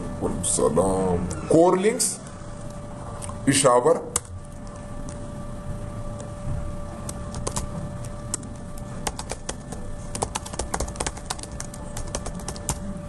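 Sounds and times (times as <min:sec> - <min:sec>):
faint steady hum: 0:00.0 - 0:13.0
keyboard typing: 0:07.1 - 0:07.7, 0:09.0 - 0:12.9.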